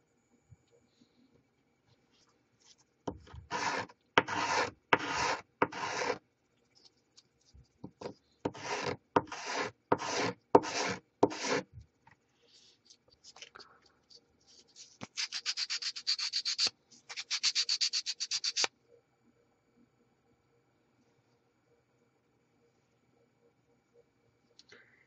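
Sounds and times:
hand sanding wood: 0:03.5 - 0:06.2, 0:08.5 - 0:11.7, 0:15.2 - 0:18.7.

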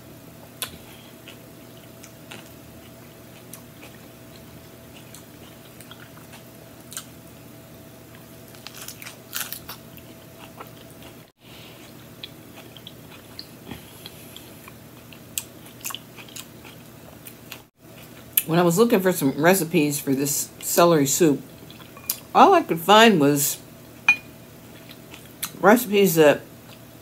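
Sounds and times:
lettuce wrap crunching bites: 0:08.5 - 0:10.8.

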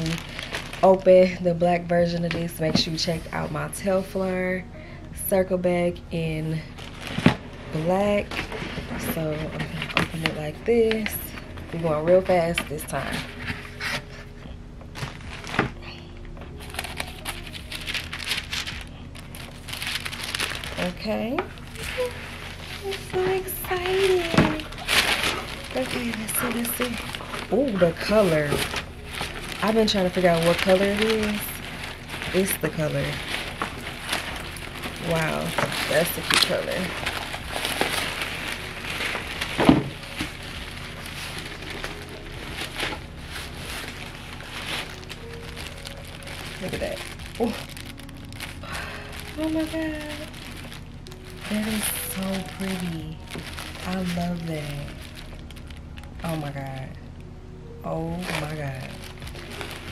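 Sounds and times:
tissue paper crinkling and rustling: 0:00.0 - 0:05.6, 0:06.2 - 0:57.2, 0:58.1 - 0:59.9.

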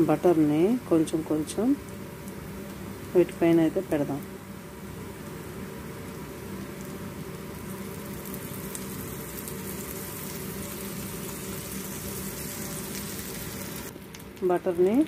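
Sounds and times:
butter sizzling in a pan: 0:00.0 - 0:15.0.

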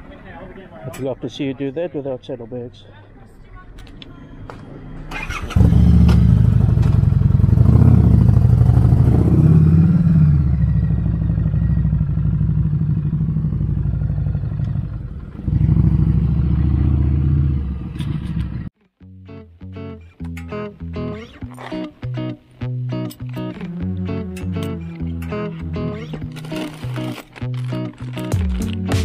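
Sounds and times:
motorcycle engine pulling away: 0:05.1 - 0:18.7
guitar music: 0:18.8 - 0:29.0.

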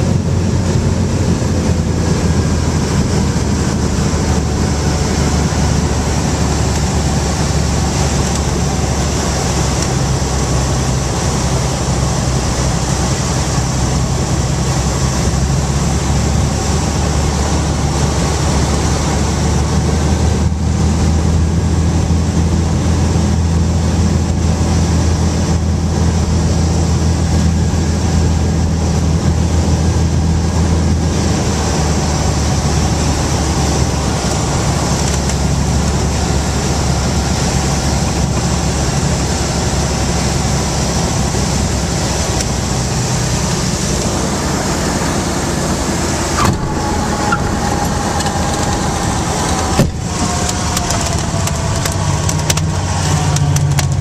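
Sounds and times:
airplane cabin propeller drone: 0:00.0 - 0:54.0.

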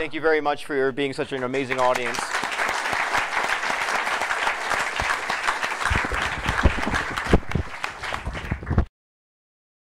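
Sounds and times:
audience applauding: 0:01.3 - 0:08.9.

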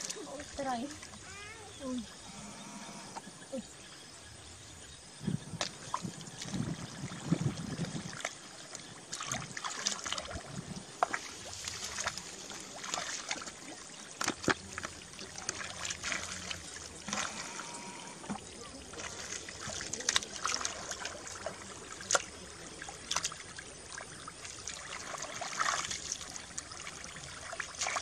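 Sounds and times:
hands squelching in wet mud: 0:09.1 - 0:17.8, 0:18.8 - 0:28.0.

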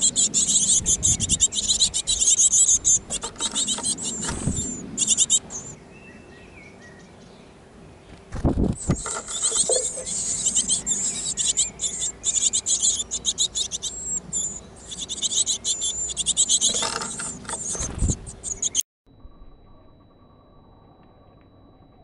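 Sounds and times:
nestlings chittering: 0:00.0 - 0:06.0, 0:08.8 - 0:18.8.

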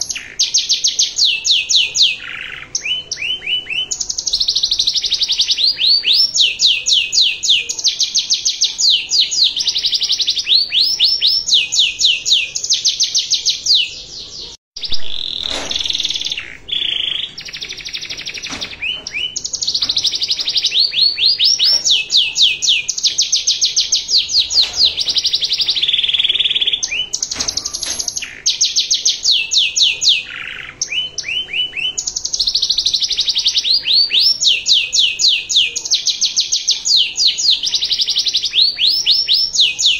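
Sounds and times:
canary singing rapid trills: 0:00.0 - 0:39.9.

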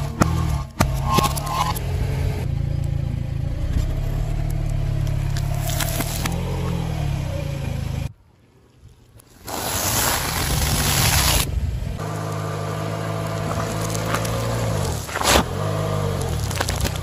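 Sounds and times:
car engine running: 0:00.0 - 0:08.1, 0:11.9 - 0:17.0
tyre crushing objects: 0:13.2 - 0:17.0.

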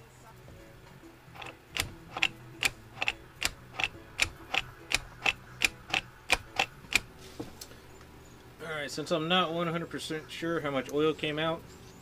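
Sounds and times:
cable linkage clicking: 0:01.4 - 0:07.1.

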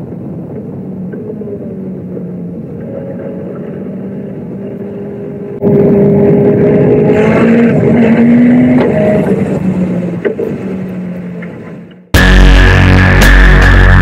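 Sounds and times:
car engine accelerating: 0:00.5 - 0:14.0
loud electronic music: 0:12.2 - 0:14.0.

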